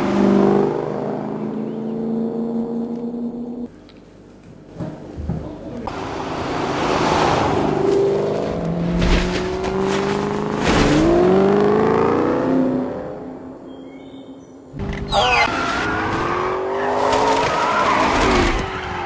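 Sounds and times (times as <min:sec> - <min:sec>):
sports car engine accelerating: 0:00.0 - 0:03.7.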